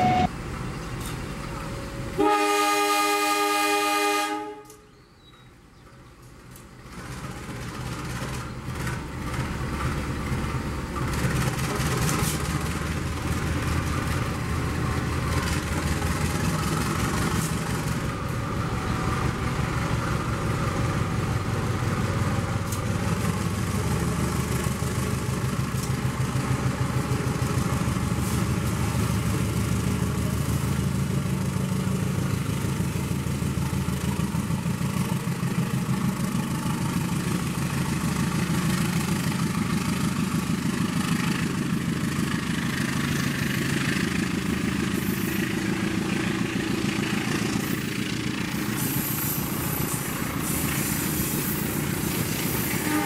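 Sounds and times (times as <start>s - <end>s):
train horn: 0.0s - 0.3s, 2.2s - 4.9s, 52.6s - 53.0s.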